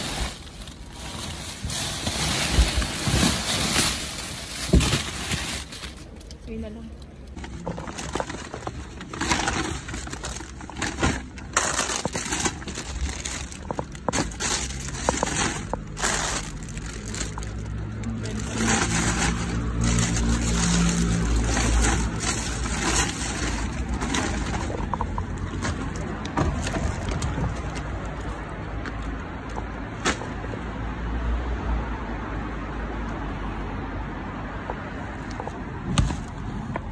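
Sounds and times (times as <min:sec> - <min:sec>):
plastic bags rustling: 0:00.0 - 0:06.6, 0:07.2 - 0:28.5
passing vehicle engine rumble: 0:09.8 - 0:36.9.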